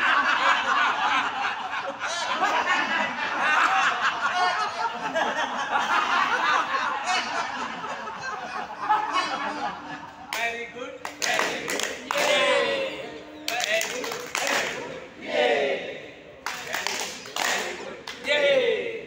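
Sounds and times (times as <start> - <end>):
group of adults laughing: 0.0 - 10.8.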